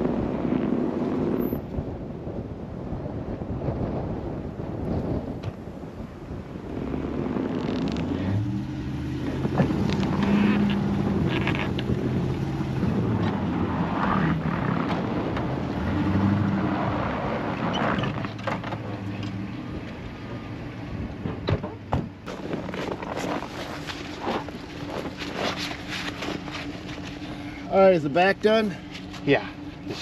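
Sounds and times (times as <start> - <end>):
vehicle engines revving: 6.2 - 30.0
snow crunching under tyres: 6.5 - 19.0, 22.2 - 30.0.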